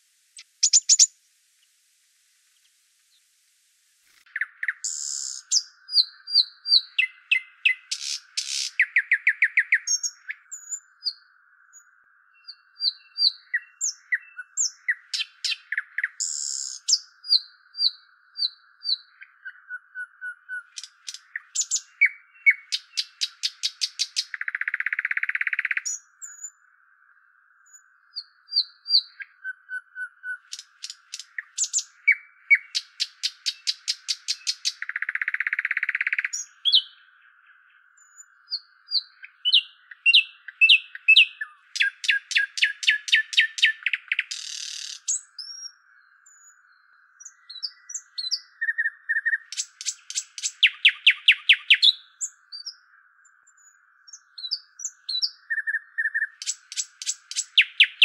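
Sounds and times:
faint steady hiss: 0:00.0 - 0:06.2
songbird singing: 0:00.0 - 0:58.0.

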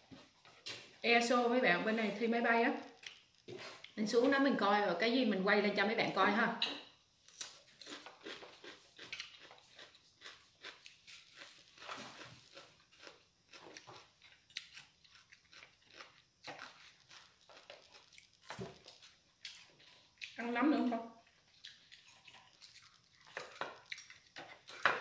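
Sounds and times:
person chewing: 0:02.8 - 0:04.0, 0:07.3 - 0:20.4, 0:21.2 - 0:25.0.

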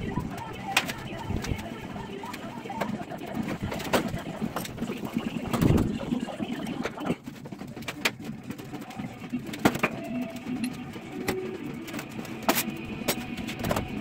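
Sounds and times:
objects knocking and clattering: 0:02.8 - 0:14.0.

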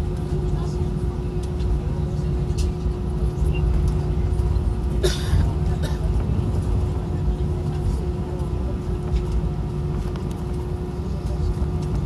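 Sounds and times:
airplane cabin engine rumble: 0:00.0 - 0:12.0.

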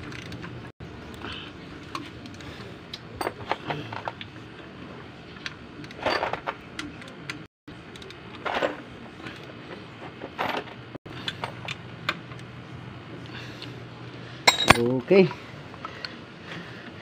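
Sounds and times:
wrench clinking on metal bolts: 0:14.5 - 0:15.0.

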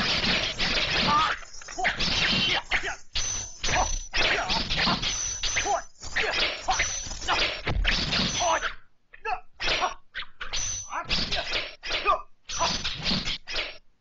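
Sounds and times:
fight whacks and swishes: 0:00.0 - 0:02.6.

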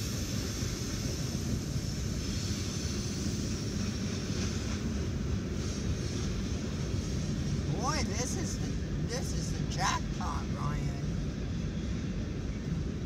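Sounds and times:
steel wheels rumbling on track: 0:00.0 - 0:13.0.

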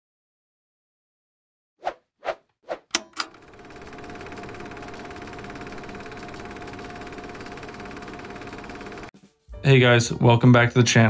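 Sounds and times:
held tone: 0:02.9 - 0:09.1
mechanical whirring hum: 0:03.0 - 0:09.1
fast fine rattle: 0:03.1 - 0:09.1.

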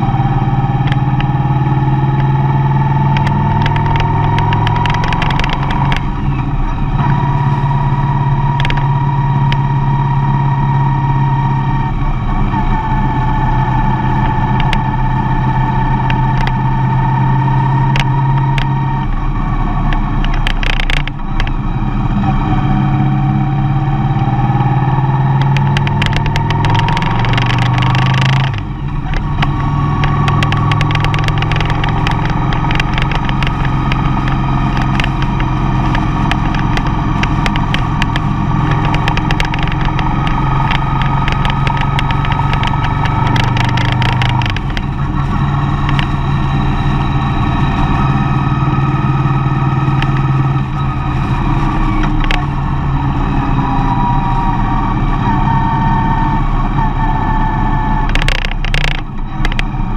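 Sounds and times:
road noise: 0:00.0 - 0:59.9
van engine droning: 0:00.0 - 0:59.9
faint ticks: 0:58.1 - 0:59.7.

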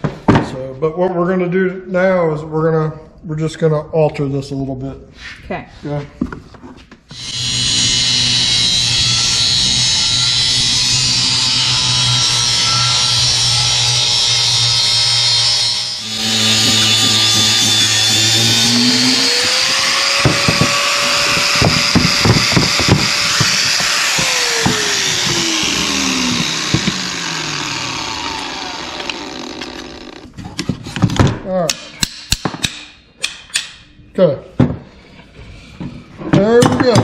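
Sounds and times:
angle grinder cutting steel: 0:07.1 - 0:30.4.

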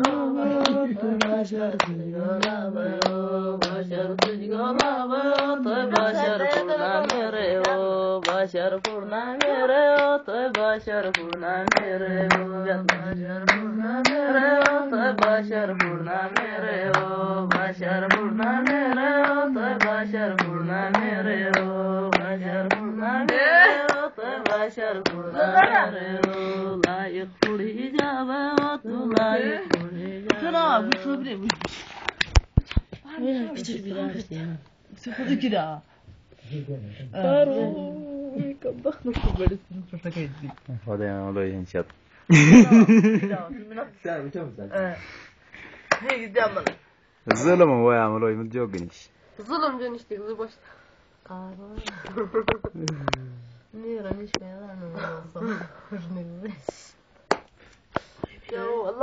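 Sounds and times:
person singing folk song: 0:00.0 - 0:32.1
hand claps: 0:00.0 - 0:33.0, 0:45.9 - 0:47.5, 0:56.6 - 0:58.6.

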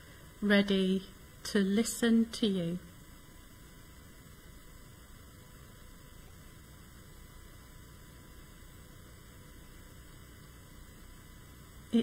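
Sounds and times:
faint electrical hum and hiss: 0:00.0 - 0:12.0.

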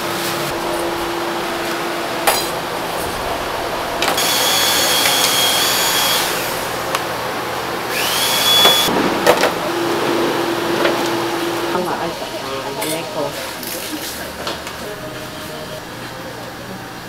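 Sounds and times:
electric motor whining: 0:00.5 - 0:07.0, 0:07.8 - 0:12.4.

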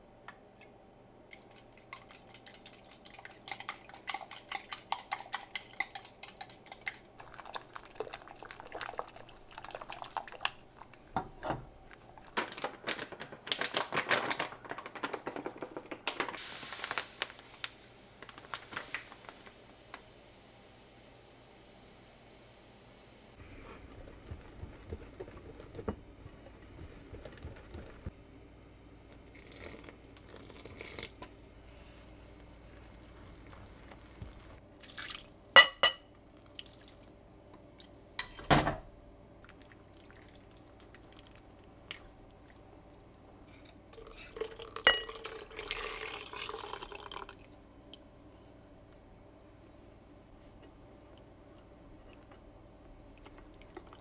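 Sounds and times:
milk pouring into bowl: 0:01.3 - 0:11.2, 0:29.1 - 0:31.2, 0:32.4 - 0:35.6, 0:39.4 - 0:43.3, 0:43.9 - 0:48.1
whisking batter: 0:01.4 - 0:10.4, 0:23.5 - 0:28.1.

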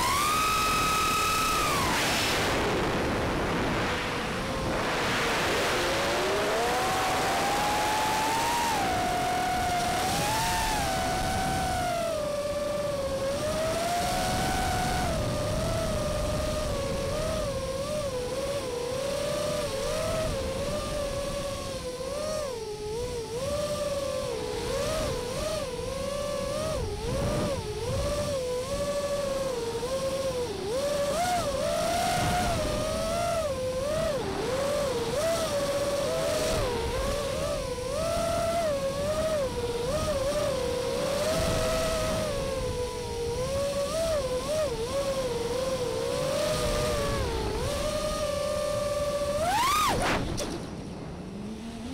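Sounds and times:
quadcopter motors whining: 0:00.0 - 0:51.9.

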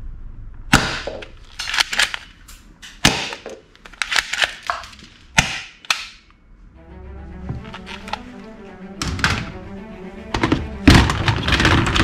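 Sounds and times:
toy pistol snapping and clicking: 0:02.9 - 0:06.2.

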